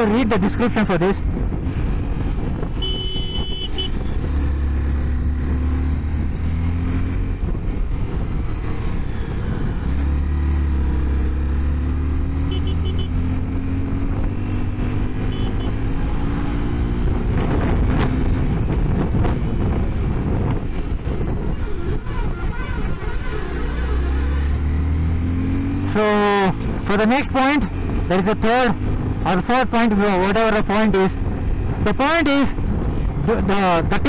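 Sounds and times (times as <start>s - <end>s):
motorcycle engine accelerating: 0.0s - 34.0s.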